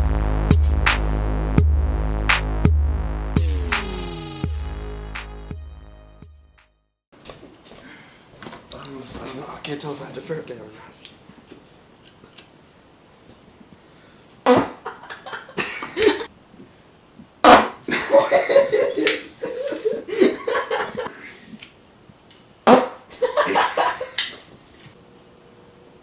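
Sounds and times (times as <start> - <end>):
fart sounds: 14.4 - 14.9, 17.4 - 17.9, 22.7 - 23.1.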